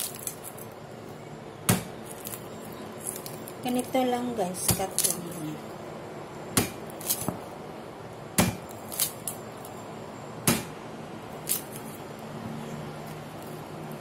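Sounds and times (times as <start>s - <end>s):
cleaver chopping on wooden board: 1.7s - 2.0s, 6.6s - 7.4s, 8.4s - 8.7s, 10.4s - 10.7s.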